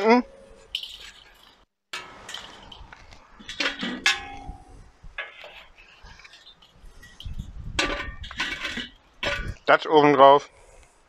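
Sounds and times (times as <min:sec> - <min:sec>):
charcoal clinking on metal grate: 0:00.3 - 0:05.6, 0:06.3 - 0:09.6.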